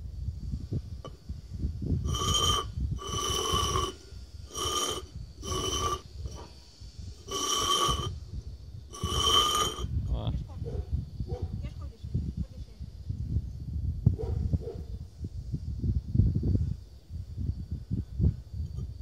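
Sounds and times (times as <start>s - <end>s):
flower pots scraping on concrete: 2.0s - 8.3s, 8.9s - 10.0s.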